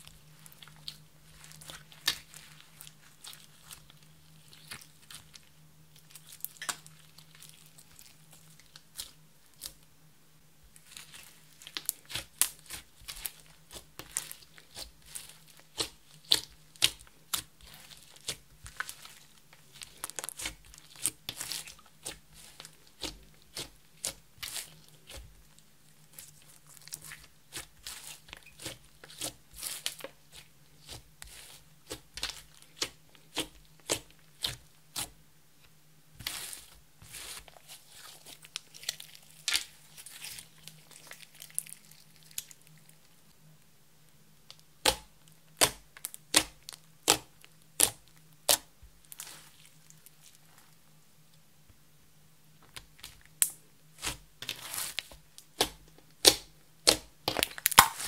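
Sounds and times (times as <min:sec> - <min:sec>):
slime sticky clicks and pops: 0:55.6 - 0:58.0.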